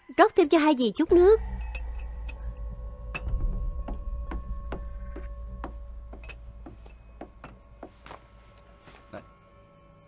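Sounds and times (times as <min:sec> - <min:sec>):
bright clink: 0:01.5 - 0:03.4.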